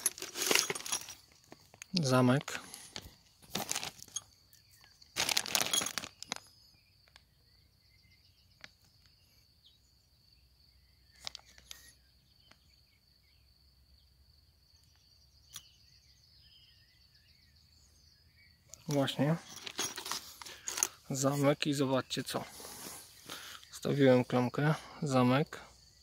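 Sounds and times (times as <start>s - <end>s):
plastic bag crinkling: 0.0s - 1.2s, 2.7s - 4.2s, 5.2s - 6.4s.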